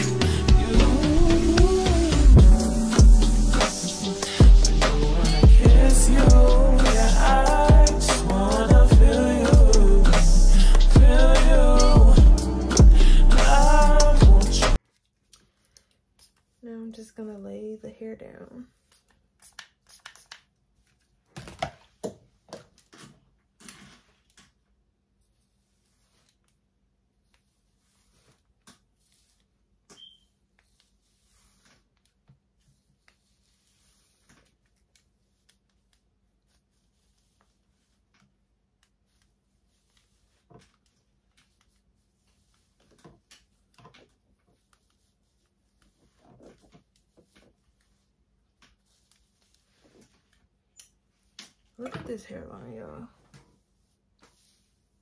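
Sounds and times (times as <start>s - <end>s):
soft clicks and rustles: 14.8s - 16.6s.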